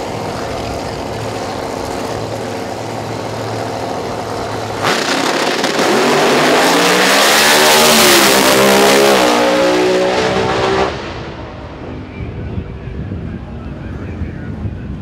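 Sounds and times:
drag race car engine accelerating: 0.0 - 12.0.

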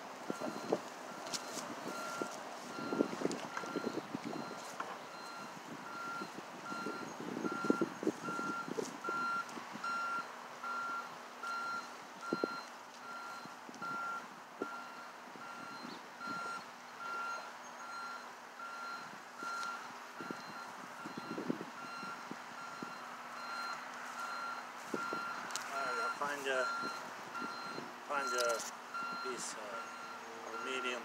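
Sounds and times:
vehicle reversing alarm beeping: 0.3 - 31.0.

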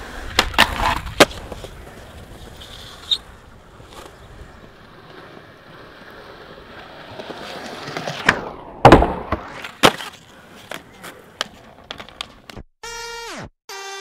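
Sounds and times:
skateboard trucks grinding ledge: 0.0 - 12.5
skateboard wheels rolling on concrete: 0.0 - 12.7
skateboard landing crack: 0.1 - 4.2, 6.2 - 12.6.

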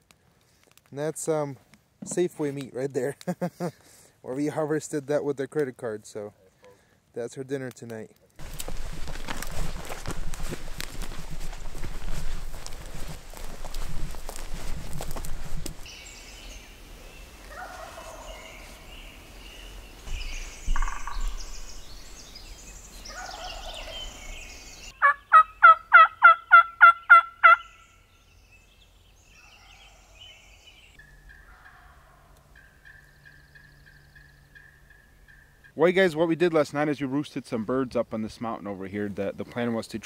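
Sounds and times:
turkey yelping: 17.5 - 18.5, 23.1 - 24.1, 25.0 - 27.7, 31.0 - 35.7.

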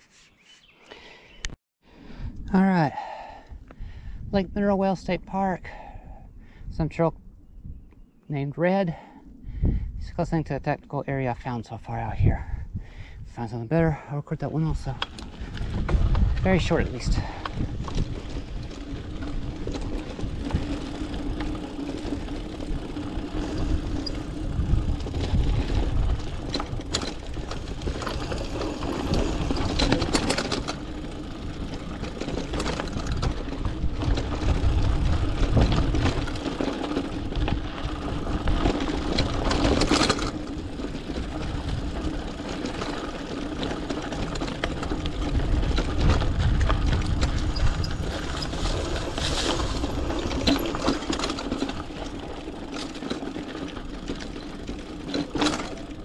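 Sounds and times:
mountain bike riding on dirt: 0.6 - 8.2, 11.1 - 56.0
bike knocks and rattles: 17.2 - 56.0.

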